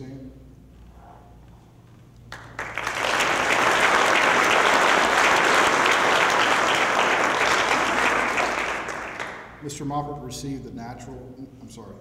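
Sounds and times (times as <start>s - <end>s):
audience applauding: 2.3s - 9.6s.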